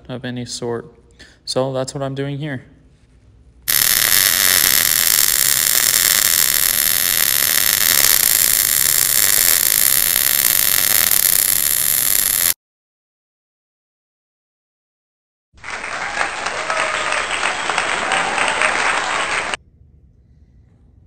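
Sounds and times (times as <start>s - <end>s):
welding arc hissing: 3.7s - 12.6s.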